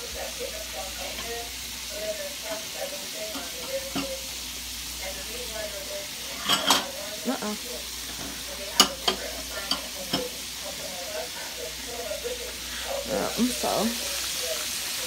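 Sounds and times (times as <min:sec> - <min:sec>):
meat sizzling in oil: 0:00.0 - 0:15.0.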